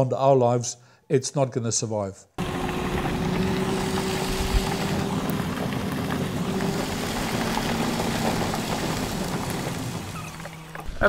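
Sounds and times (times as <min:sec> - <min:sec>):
engine hum: 0:02.4 - 0:11.0
tyres on gravel road: 0:02.4 - 0:11.0.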